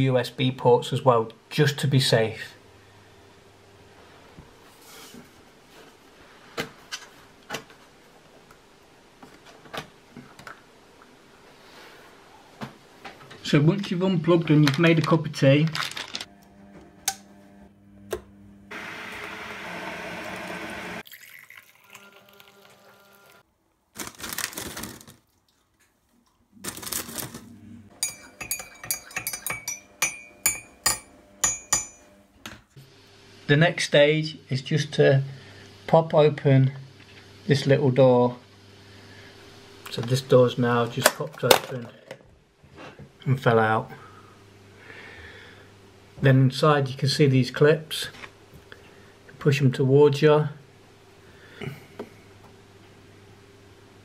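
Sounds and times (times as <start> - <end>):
plastic tray rustle: 24.0 - 25.2, 26.6 - 27.6
teaspoon clinking in a mug: 28.0 - 32.0.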